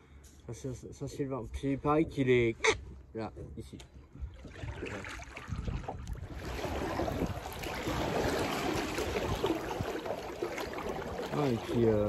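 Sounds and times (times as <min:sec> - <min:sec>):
paddle splashing in water: 0:04.3 - 0:12.0.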